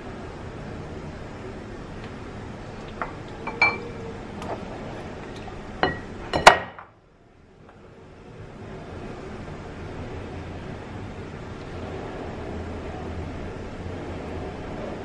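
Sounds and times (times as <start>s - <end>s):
utensils clinking on glass bowl: 3.4s - 4.0s.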